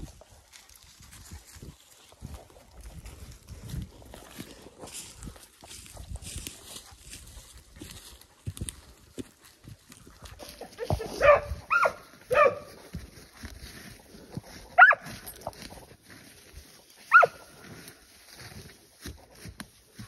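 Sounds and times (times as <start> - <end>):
hound yelping barks: 10.8 - 12.8, 14.8 - 15.2, 17.1 - 17.5.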